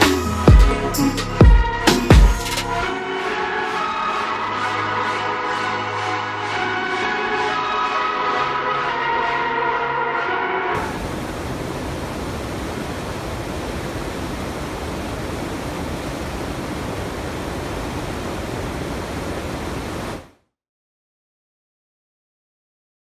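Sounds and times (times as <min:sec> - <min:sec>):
water rushing over weir: 0:10.8 - 0:20.3.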